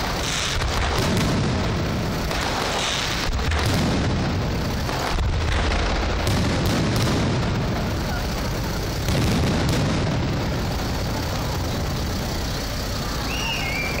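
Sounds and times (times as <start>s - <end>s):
firework shells bursting: 0.0s - 14.0s
firework whistle: 12.8s - 14.0s.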